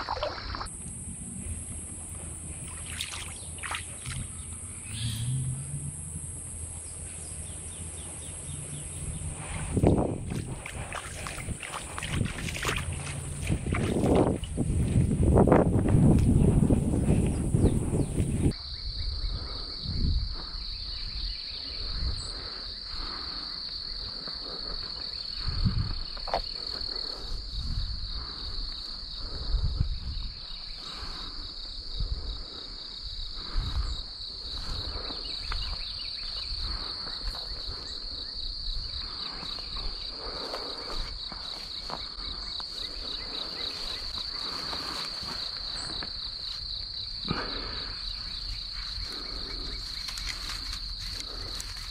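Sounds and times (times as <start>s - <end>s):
insects trilling: 0.0s - 51.9s
footsteps on grass and dirt: 8.5s - 18.5s, 39.1s - 47.7s, 48.4s - 51.9s.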